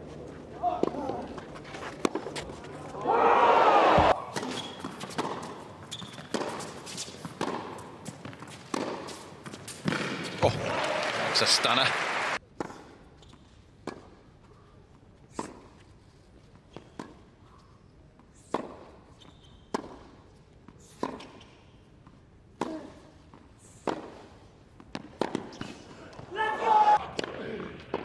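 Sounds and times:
tennis ball hit by rackets: 4.0 - 10.4, 21.0 - 21.4, 23.8 - 24.2, 24.8 - 25.8.

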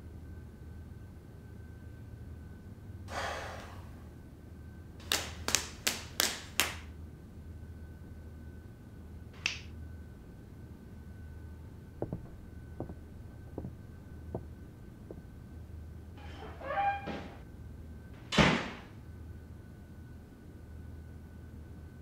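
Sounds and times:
breathy hiss: 3.1 - 4.1
knuckles cracking: 9.4 - 9.7, 12.0 - 15.3
neck cracking: 12.0 - 15.4.

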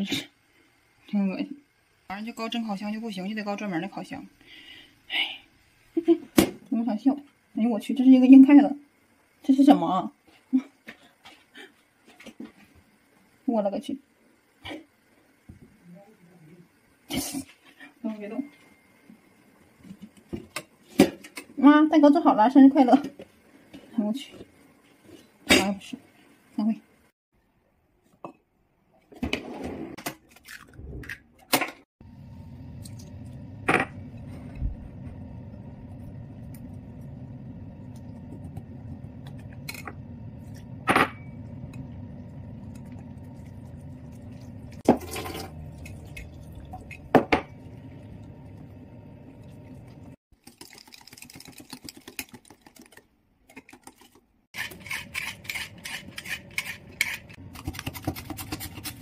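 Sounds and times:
steady low hum: 32.0 - 50.2
potato peeler scraping: 53.8 - 59.0.

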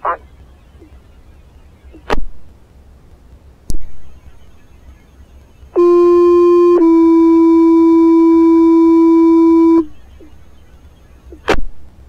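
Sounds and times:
two-tone paging tones over radio: 5.8 - 9.9.

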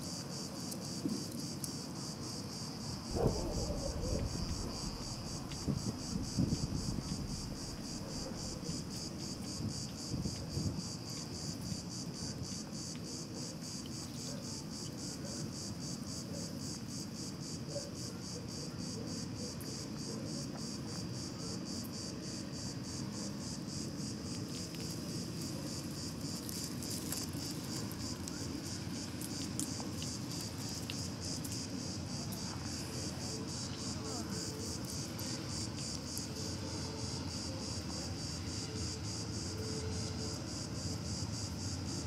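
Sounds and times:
insects chirring: 0.0 - 42.0
steady low rumble: 3.1 - 9.8.

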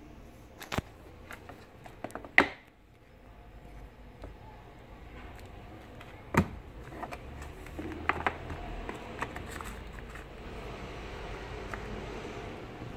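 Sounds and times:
cardboard clicks and taps: 5.9 - 10.2.

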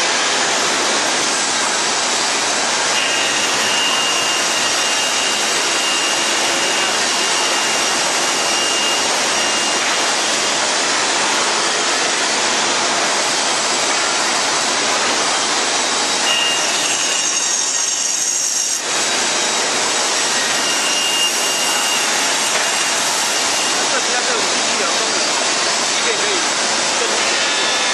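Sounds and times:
band saw cutting wood: 0.0 - 27.9
thin high whistle: 3.0 - 9.8, 16.2 - 18.6, 20.4 - 23.8.

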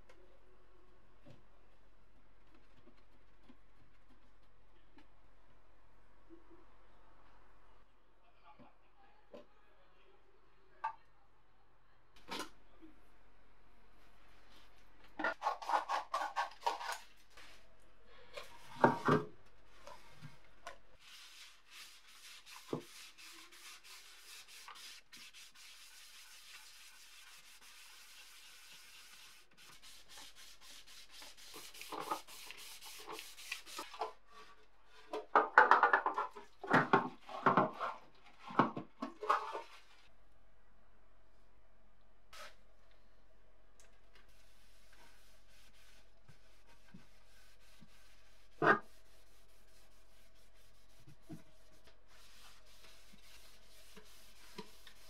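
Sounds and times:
knocks and scrapes of pan: 35.0 - 39.8.

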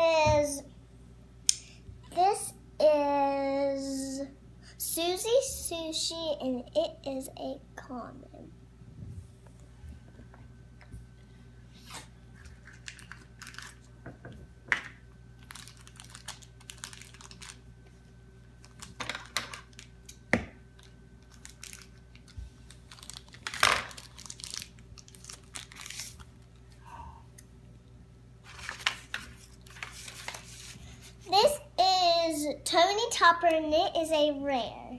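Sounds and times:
wrapper tearing and crinkling: 11.9 - 13.9, 15.4 - 17.7, 18.6 - 20.2, 20.8 - 26.6, 28.5 - 30.7.

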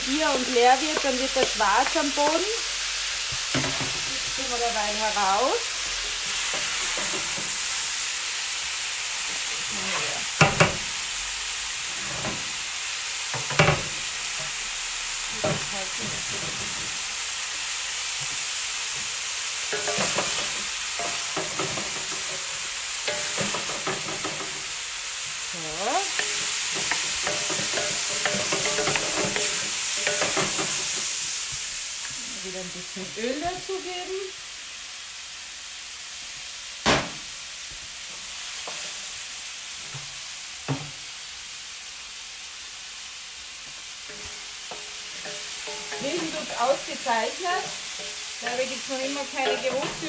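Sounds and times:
food sizzling in a wok: 0.0 - 50.0
spatulas scraping and knocking pan: 11.9 - 12.6, 15.3 - 17.0, 18.2 - 24.8, 25.7 - 31.2, 44.1 - 50.0.

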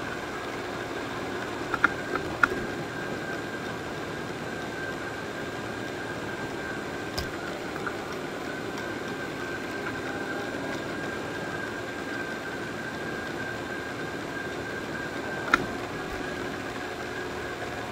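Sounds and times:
robot vacuum whirring: 1.2 - 17.7.

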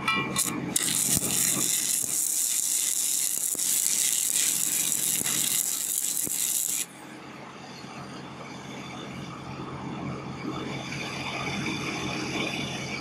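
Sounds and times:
welding arc crackling: 0.0 - 6.9.

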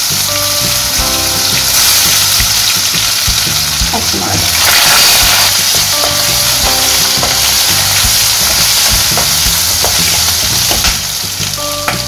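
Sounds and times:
food sizzling in hot oil: 0.0 - 12.0.

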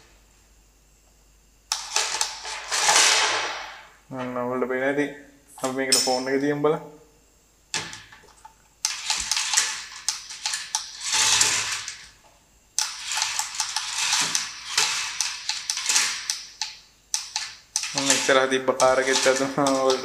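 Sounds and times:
toy truck motor whirring and rattling: 8.8 - 12.2, 12.8 - 20.0.

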